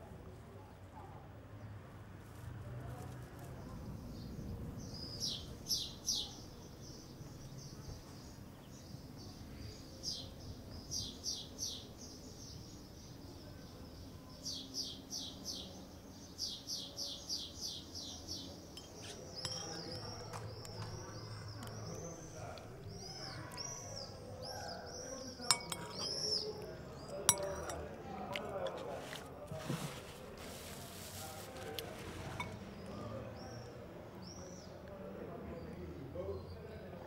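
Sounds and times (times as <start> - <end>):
bird chirping: 4.0 - 27.9.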